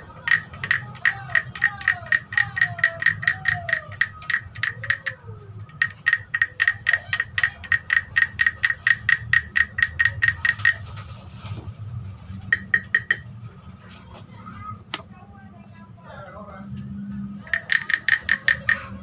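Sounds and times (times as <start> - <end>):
wooden frog rasp croaking clicks: 0.0 - 11.0, 12.4 - 13.3, 17.4 - 19.0.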